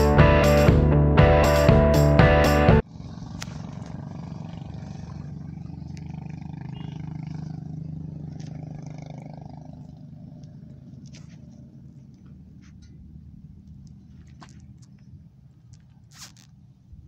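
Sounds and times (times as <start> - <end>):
low engine-like hum: 2.8 - 16.0.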